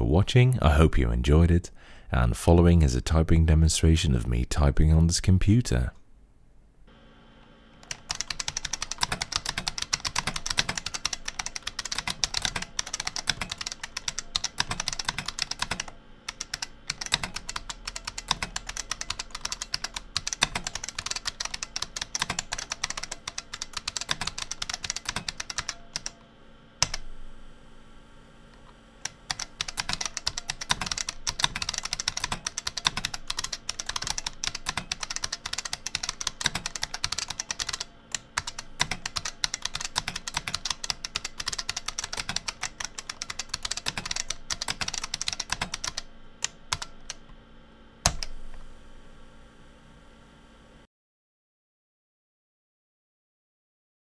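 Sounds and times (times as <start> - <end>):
fast typing on clicky keyboard: 7.8 - 26.2, 29.3 - 47.2.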